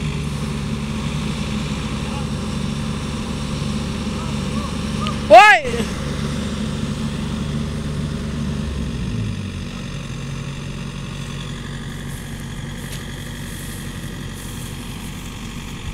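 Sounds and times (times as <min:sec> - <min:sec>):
combine harvester engine: 0:00.0 - 0:15.9
tractor engine: 0:00.0 - 0:15.9.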